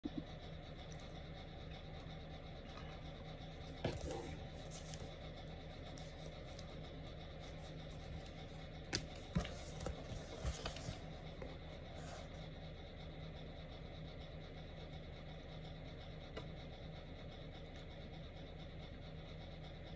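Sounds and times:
book pages rustling: 3.8 - 5.1, 7.4 - 12.2.

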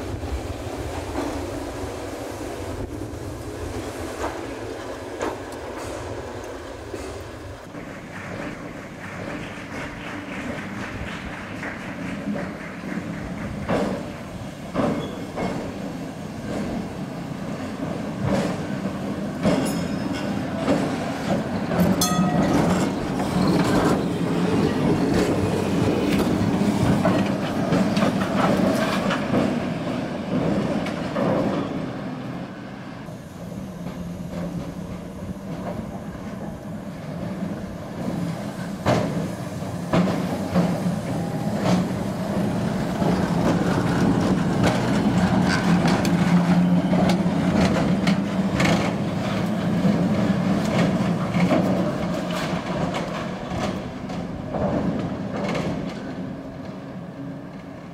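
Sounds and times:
tram wheels clacking over rails: 0.0 - 57.9
tram wheel squeal: 14.7 - 16.0, 18.5 - 29.2, 31.0 - 51.1.

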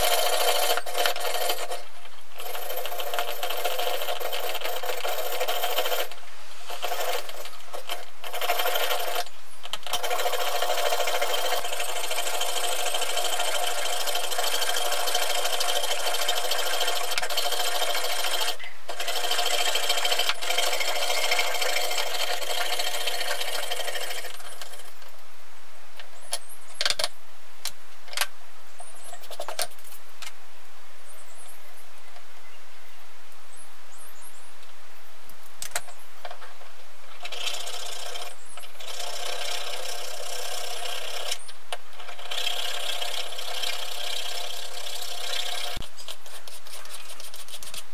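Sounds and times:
hand saw cutting metal: 0.0 - 24.9, 37.2 - 47.9.

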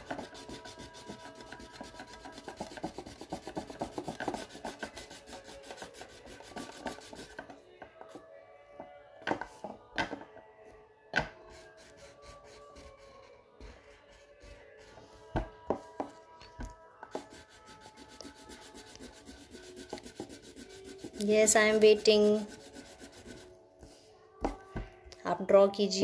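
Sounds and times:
scratchy rubbing strokes: 0.0 - 7.4, 17.1 - 23.6.

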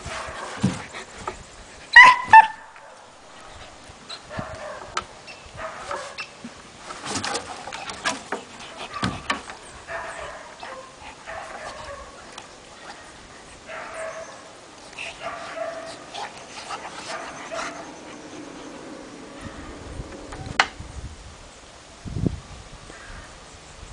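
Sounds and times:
dogs whimpering and yipping: 1.9 - 2.6, 14.9 - 20.6.

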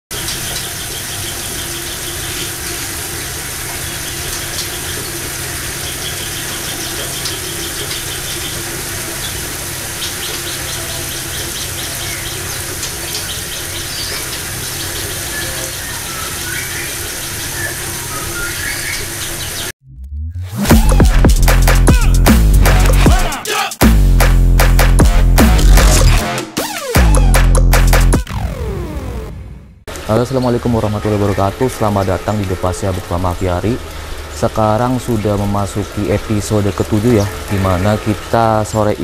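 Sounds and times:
songbirds chirping: 0.1 - 19.8, 30.0 - 39.0.

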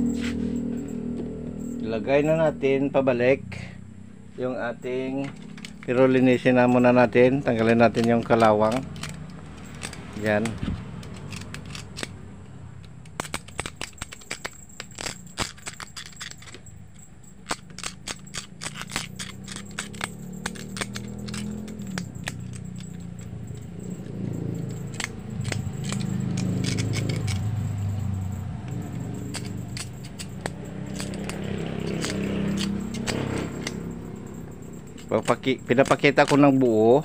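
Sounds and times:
metal clip being scraped: 5.3 - 12.2, 12.8 - 16.6, 17.4 - 28.1, 28.8 - 36.7.

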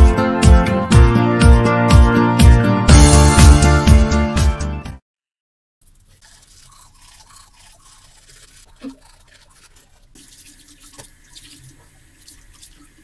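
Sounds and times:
toothbrush scrubbing teeth: 5.8 - 13.0.

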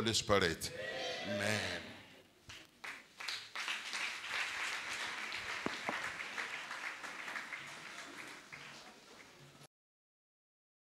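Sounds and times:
crowd applauding: 2.8 - 9.6.

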